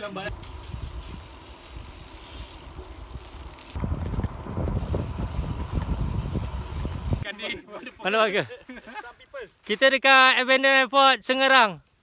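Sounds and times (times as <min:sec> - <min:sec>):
wind rumbling on microphone: 0:00.3 - 0:07.2.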